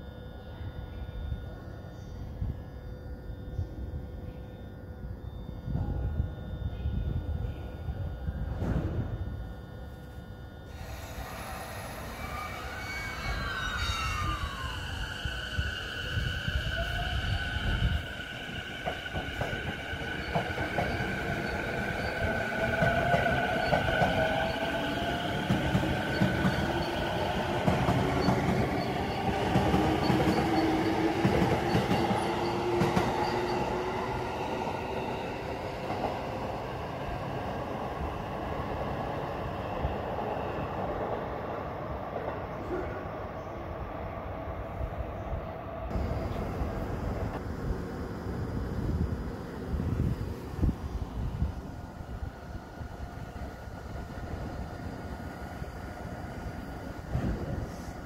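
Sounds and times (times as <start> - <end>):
train wheels rumbling on rails: 10.7 - 41.2, 45.9 - 58.0.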